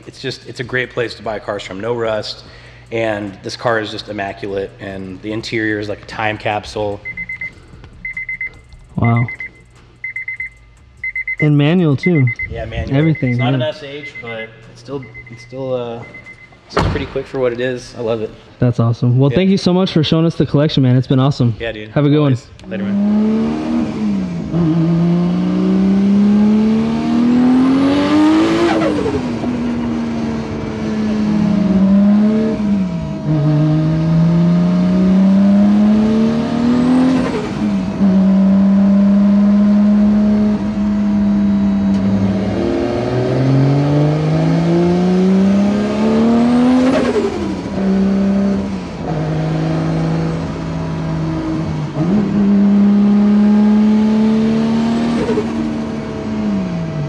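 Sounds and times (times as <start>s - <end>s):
car engine accelerating through gears: 22.6s - 57.0s.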